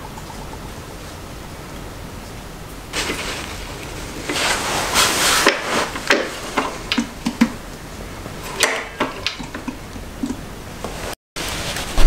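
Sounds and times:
plastic sheeting crinkling: 2.9 - 6.8, 10.9 - 12.0.

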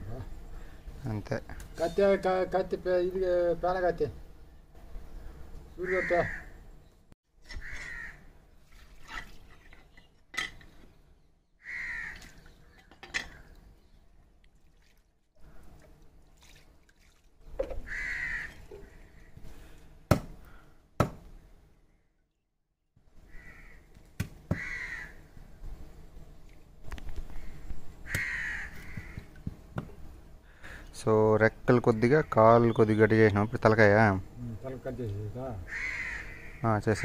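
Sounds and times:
crows cawing: 5.8 - 6.6, 7.5 - 8.3, 11.6 - 13.5, 17.8 - 19.3, 23.2 - 23.9, 24.5 - 25.3, 27.3 - 29.4, 35.6 - 37.0
water splashing: 8.6 - 9.9, 14.4 - 19.0.

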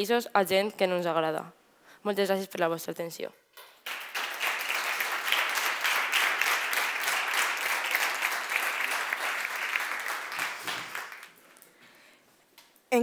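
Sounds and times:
audience applauding: 3.8 - 11.7.

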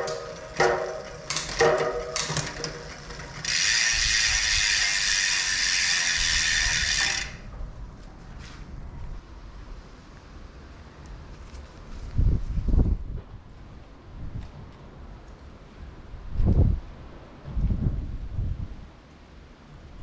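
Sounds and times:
bicycle freehub buzzing: 0.0 - 7.6.

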